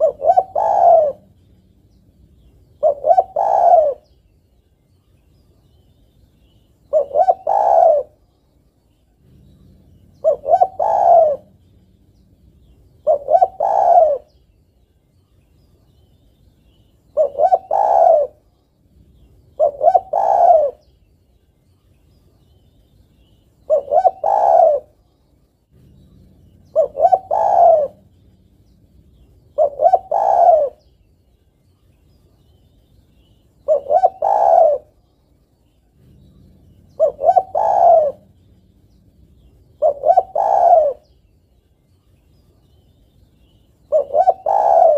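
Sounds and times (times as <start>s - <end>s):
dove cooing: 0.0s - 4.2s, 6.8s - 8.3s, 9.1s - 14.5s, 16.7s - 21.0s, 23.6s - 25.0s, 25.7s - 31.0s, 33.6s - 35.0s, 35.8s - 41.3s, 43.8s - 44.9s.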